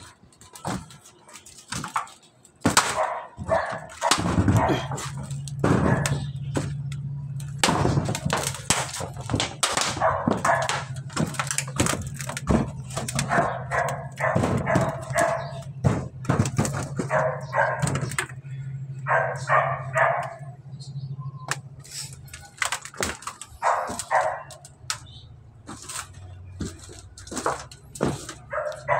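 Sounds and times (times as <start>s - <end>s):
knocks on metal roofing: 2.6s - 18.3s
dog barking: 2.9s - 5.0s, 5.8s - 6.2s, 10.0s - 10.9s, 13.2s - 15.7s, 17.0s - 18.1s, 19.0s - 20.6s, 23.6s - 24.6s, 28.4s - 28.9s.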